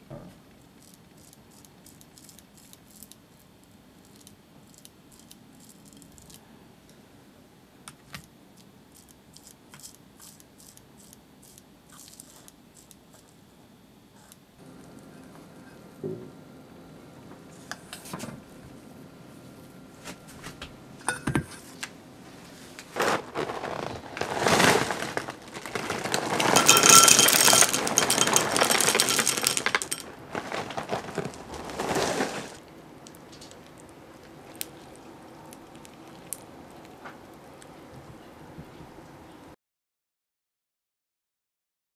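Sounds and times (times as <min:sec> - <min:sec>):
cereal rattling into glass bowl: 0:23.0 - 0:32.6.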